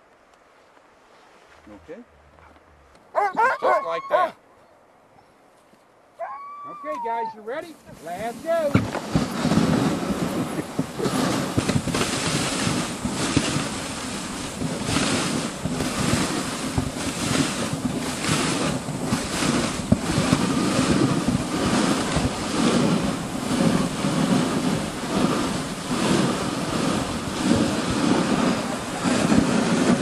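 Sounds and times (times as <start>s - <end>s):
sled runners sliding over snow: 0.0s - 4.4s, 5.4s - 30.0s
wind buffeting microphone: 6.8s - 30.0s.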